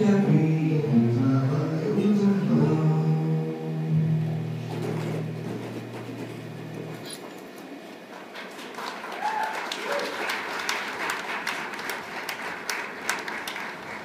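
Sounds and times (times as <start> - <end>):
audience applauding: 8.1 - 14.0
crowd whooping: 8.8 - 10.4.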